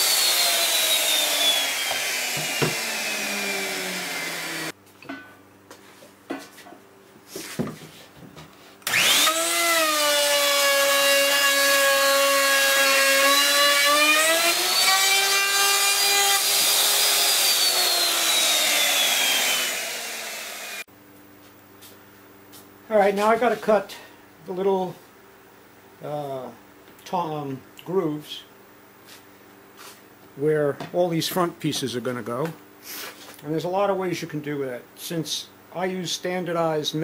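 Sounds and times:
electric router whining: 0:00.0 - 0:04.8, 0:08.8 - 0:20.9.

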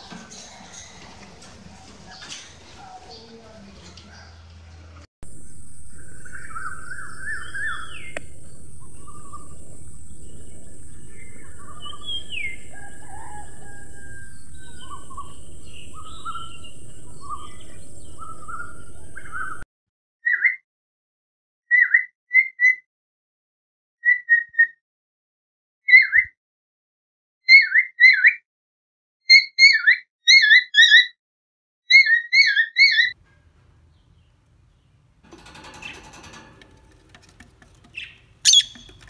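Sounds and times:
budgerigars chirping: 0:08.8 - 0:19.6, 0:38.0 - 0:39.0.

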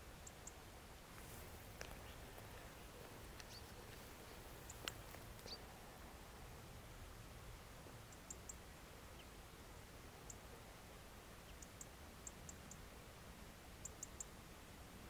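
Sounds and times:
very high-pitched ticks: 0:00.2 - 0:00.6, 0:11.5 - 0:12.8, 0:13.8 - 0:14.3.

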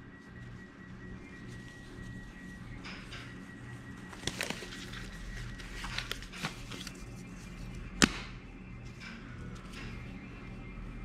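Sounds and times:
steady low hum: 0:00.0 - 0:11.0
rubber gloves snapping: 0:08.0 - 0:08.3.

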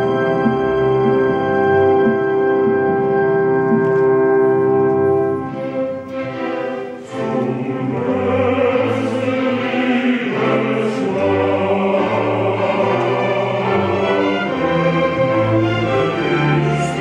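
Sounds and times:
orchestra playing: 0:00.0 - 0:17.0
chorus singing: 0:05.5 - 0:17.0.

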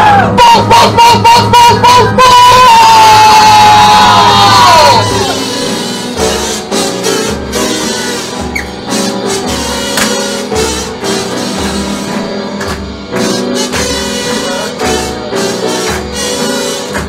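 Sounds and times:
upright piano: 0:00.0 - 0:17.0
cymbal and drum strikes: 0:05.1 - 0:17.0.

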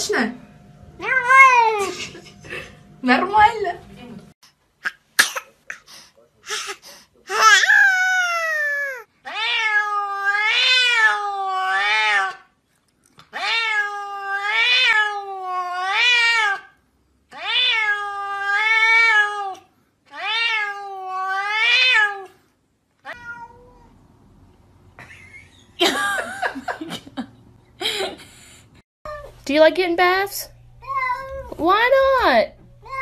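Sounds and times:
cat meowing: 0:07.3 - 0:12.4, 0:13.3 - 0:16.7, 0:17.3 - 0:22.3, 0:23.0 - 0:24.0, 0:30.8 - 0:31.6, 0:32.8 - 0:33.0
second cat crying: 0:07.3 - 0:12.4, 0:23.0 - 0:23.9.

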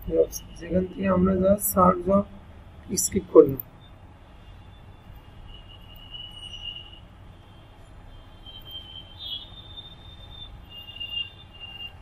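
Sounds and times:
low steady hum: 0:00.0 - 0:10.7
faint high-pitched tone: 0:00.0 - 0:12.0.

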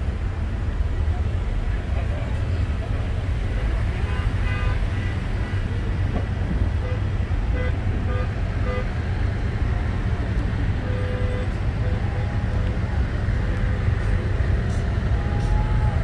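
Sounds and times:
vehicle engines rumbling: 0:00.0 - 0:16.0
car horns tooting: 0:03.6 - 0:05.7, 0:06.6 - 0:09.2, 0:10.7 - 0:12.3.

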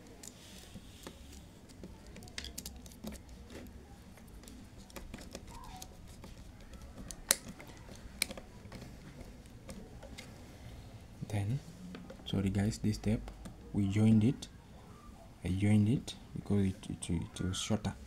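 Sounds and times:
screwdriver clicks and taps: 0:06.1 - 0:10.2.

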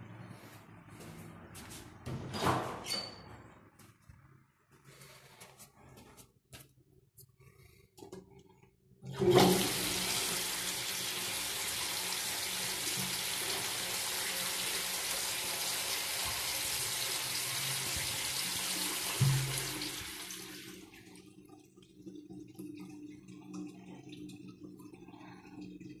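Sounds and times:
squat toilet flushing: 0:09.0 - 0:26.0
water trickling: 0:19.2 - 0:26.0.

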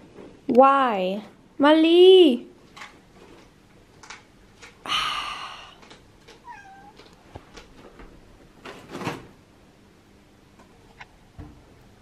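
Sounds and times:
cat meowing: 0:06.4 - 0:07.1.

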